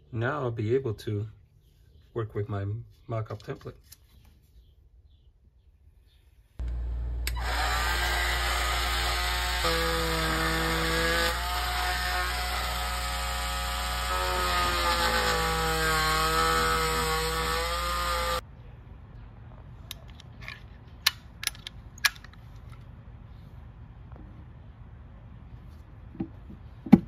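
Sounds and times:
oscillating multi-tool cutting drywall: 0:07.3 - 0:18.4.

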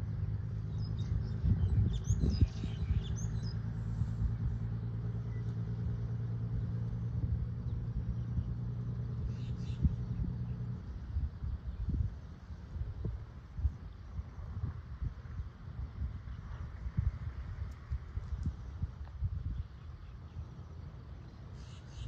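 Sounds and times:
birds chirping: 0:00.0 - 0:12.0, 0:19.5 - 0:22.0
engine idling: 0:00.0 - 0:22.0.

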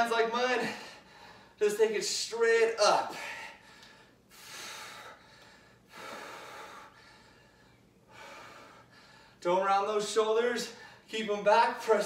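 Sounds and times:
man breathing hard: 0:00.6 - 0:01.6, 0:03.1 - 0:09.4.

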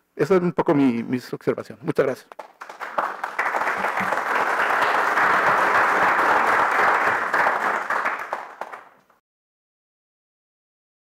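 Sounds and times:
audience applauding: 0:02.3 - 0:09.0.

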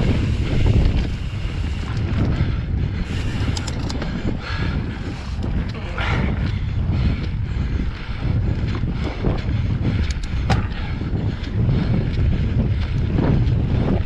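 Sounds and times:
bike clicks and rattles: 0:00.0 - 0:14.0
bike tyres rolling on dirt: 0:00.0 - 0:14.0
wind buffeting microphone: 0:00.0 - 0:14.0.

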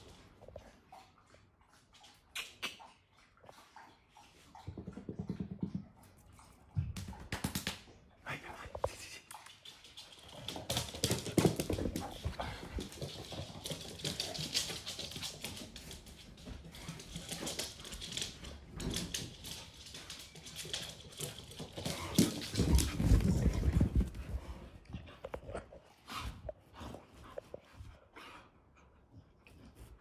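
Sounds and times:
dogs scrabbling on laminate floor: 0:09.5 - 0:25.6.

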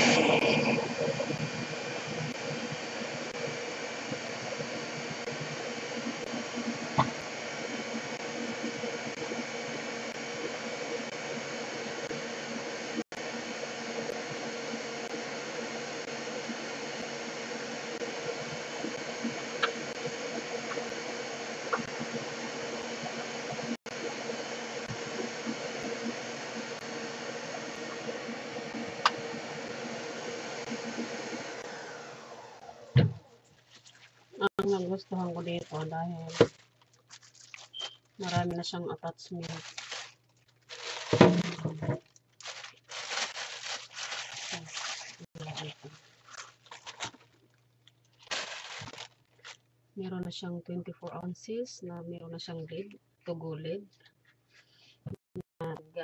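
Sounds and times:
electric motor humming: 0:00.0 - 0:33.2.

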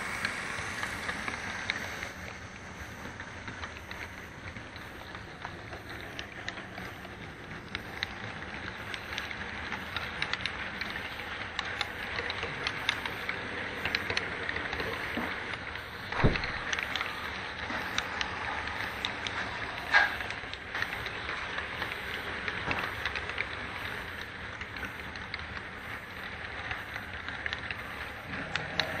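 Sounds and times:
model train cars rolling: 0:00.0 - 0:29.0
wheels clicking over rail joints: 0:00.0 - 0:29.0.

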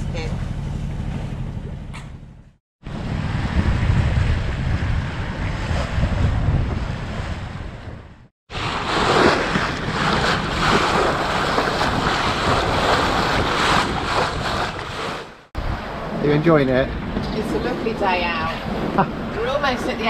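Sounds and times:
water rushing past a hull: 0:02.8 - 0:20.0
wind buffeting microphone: 0:02.8 - 0:20.0.

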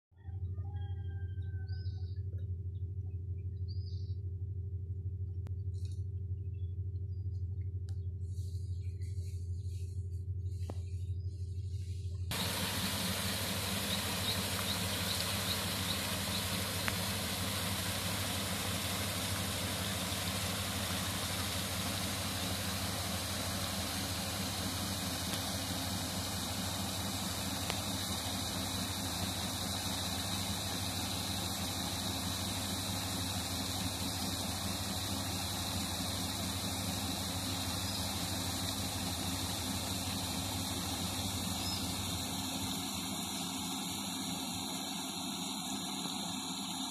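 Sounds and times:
motor humming: 0:05.2 - 0:46.9
paddle wheels splashing water: 0:12.3 - 0:43.6.

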